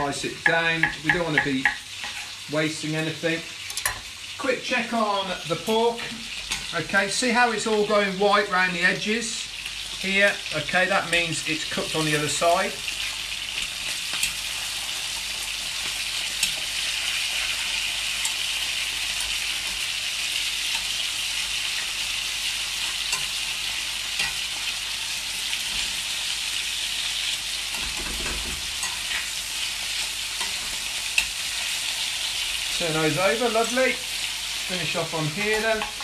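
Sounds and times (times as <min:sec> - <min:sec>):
meat sizzling in a frying pan: 0:00.0 - 0:36.0
tongs clicking against pan: 0:00.4 - 0:02.4, 0:03.7 - 0:04.1, 0:13.5 - 0:14.6, 0:15.2 - 0:16.7, 0:18.1 - 0:19.8, 0:22.8 - 0:24.7, 0:30.0 - 0:31.7, 0:35.6 - 0:36.0.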